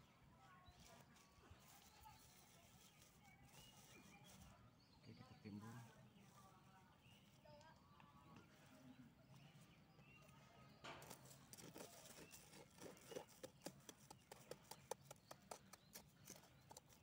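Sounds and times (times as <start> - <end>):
blade scraping sandy soil: 11.0 - 17.0.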